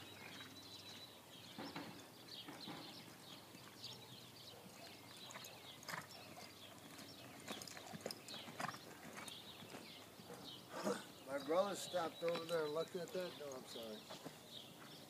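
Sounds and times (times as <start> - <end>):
faint hoofbeats on dirt: 0.0 - 15.0.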